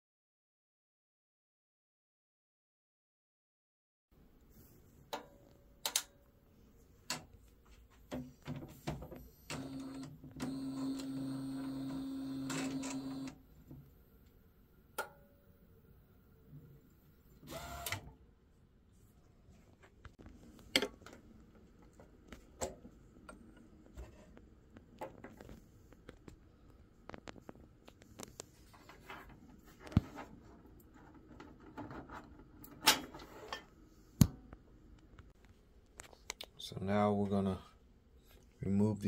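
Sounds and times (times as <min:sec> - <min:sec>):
printer mechanism noise: 0:08.5 - 0:13.4, 0:17.4 - 0:18.1.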